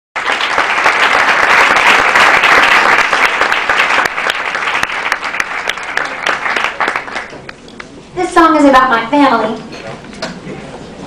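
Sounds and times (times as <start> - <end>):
audience applauding: 0.2 - 7.6.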